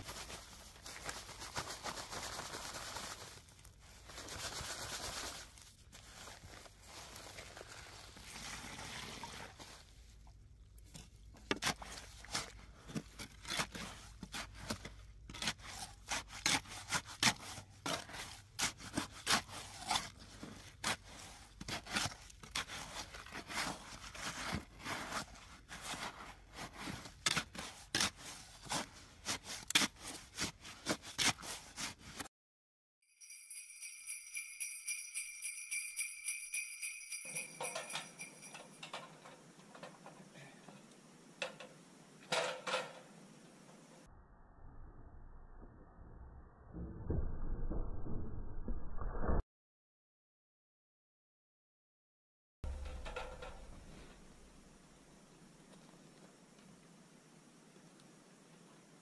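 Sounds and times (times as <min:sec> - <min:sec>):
music with jingle bells: 0:33.0 - 0:38.9
sharp clicks and knocks: 0:52.7 - 0:54.2.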